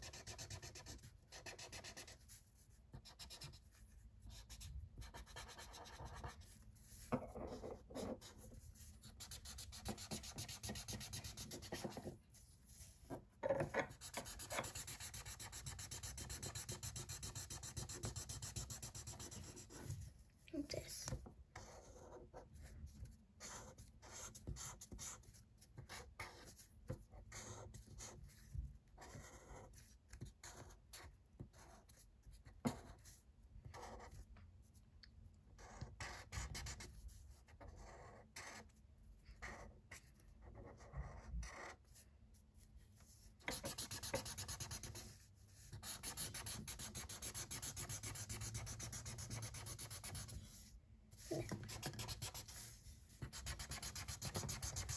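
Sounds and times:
felt-tip marker scribbling on paper: 4.3s - 12.1s, 13.9s - 19.8s, 43.4s - 54.9s.

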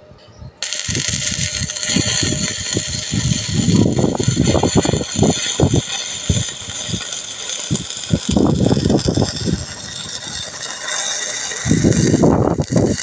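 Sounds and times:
low rumbles: 0.6s - 13.0s
welding arc crackling and hissing: 0.6s - 13.0s.

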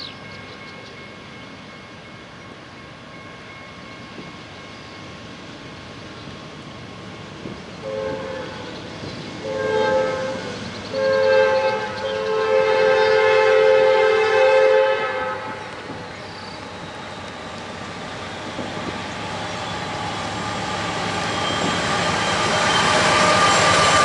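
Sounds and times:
train rumbling: 0.0s - 24.0s
locomotive horn blasts: 7.8s - 8.8s, 9.4s - 15.8s.

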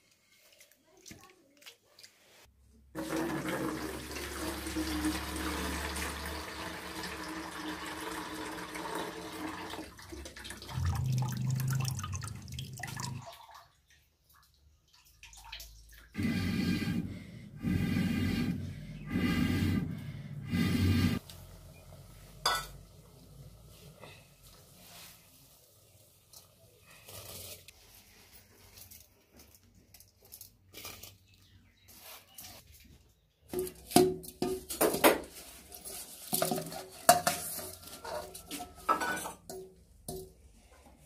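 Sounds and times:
water pouring into a plastic bucket: 3.0s - 13.7s.

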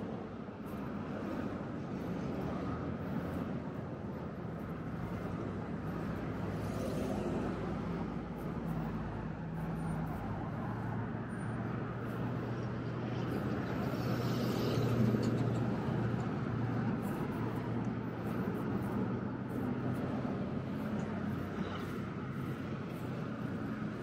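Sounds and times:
cars driving past: 0.0s - 24.0s.

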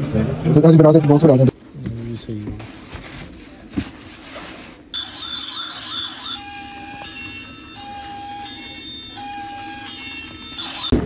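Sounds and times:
plastic packaging rustling: 1.6s - 5.0s
electronic beeps: 5.0s - 11.0s
toy siren wailing: 5.0s - 11.0s.

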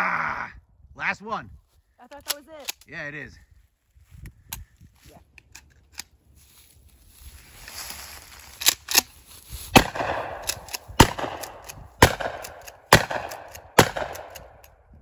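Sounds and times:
shotgun shots with echo: 9.7s - 14.6s.

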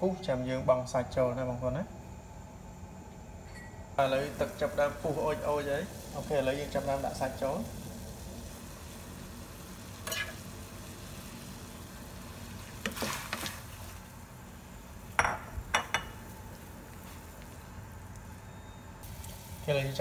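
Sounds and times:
spoon clinking on plate and pot: 3.4s - 3.8s, 10.0s - 10.4s, 15.2s - 16.2s.

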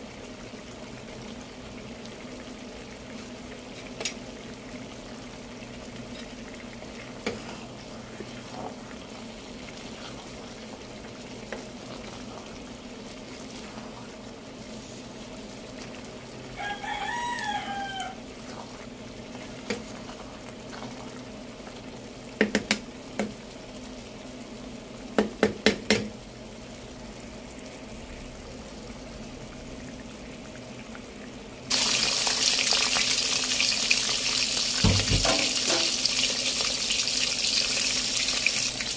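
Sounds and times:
fish sizzling in hot oil: 0.0s - 30.2s, 31.6s - 38.9s
rooster crowing: 16.5s - 18.3s
wooden spatula knocking on pan: 22.4s - 23.4s, 25.2s - 26.1s, 34.8s - 36.0s.

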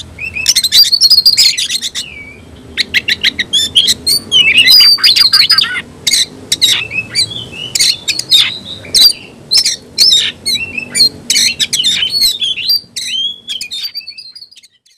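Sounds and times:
bird singing sharp whistles: 6.6s - 14.9s.

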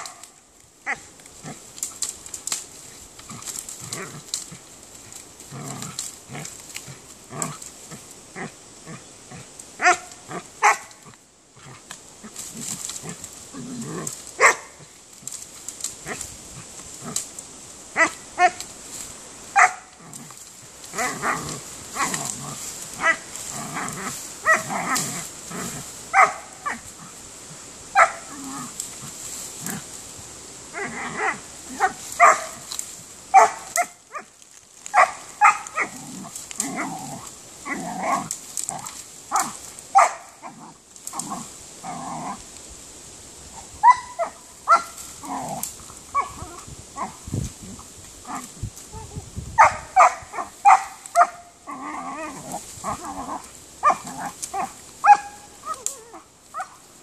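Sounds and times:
dogs digging through brush: 0.0s - 57.0s
dogs yipping and barking: 9.8s - 10.9s, 14.4s - 14.8s, 19.6s - 20.0s, 26.1s - 26.9s, 27.9s - 28.3s, 30.8s - 32.6s, 33.3s - 34.3s, 35.0s - 36.0s, 39.3s - 40.6s, 43.8s - 47.2s, 49.6s - 56.8s.

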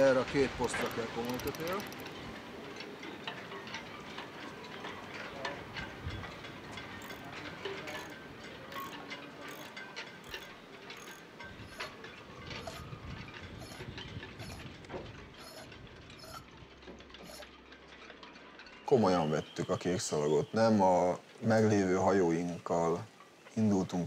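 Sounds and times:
hand tool clicking on metal: 0.7s - 2.2s, 6.8s - 12.9s.

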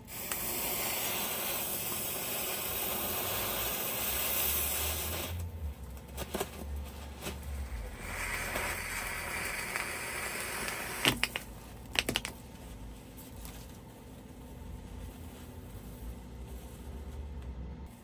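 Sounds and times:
fuse primer fizzing hiss: 0.0s - 5.4s, 7.6s - 11.4s.

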